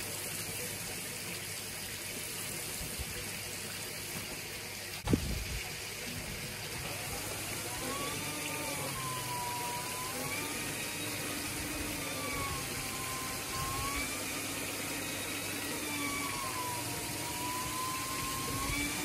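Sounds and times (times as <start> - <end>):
shampoo polisher motor whirring: 6.8 - 19.0.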